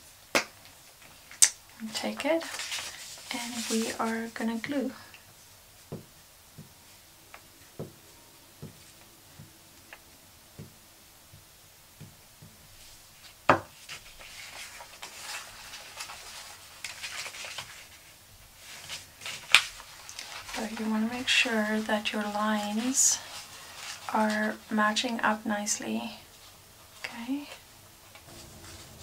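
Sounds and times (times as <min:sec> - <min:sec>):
paper rustling: 0:00.6 - 0:06.0, 0:12.7 - 0:25.0.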